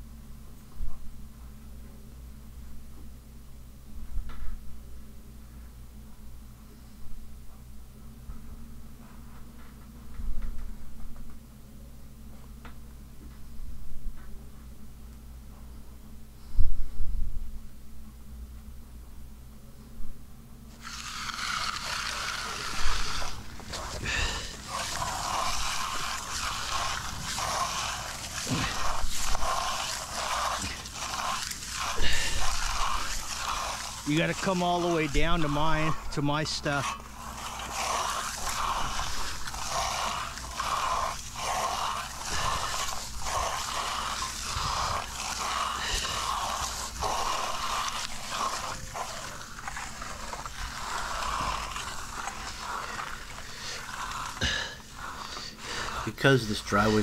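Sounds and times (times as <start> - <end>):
trowel scraping wet concrete: 20.7 - 57.0.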